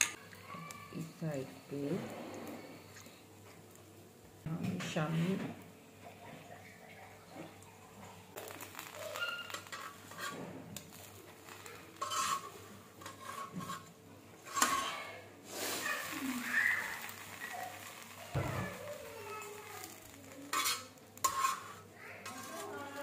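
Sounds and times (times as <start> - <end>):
sizzling: 0.0 - 23.0
metal spatula scraping griddle: 8.4 - 23.0.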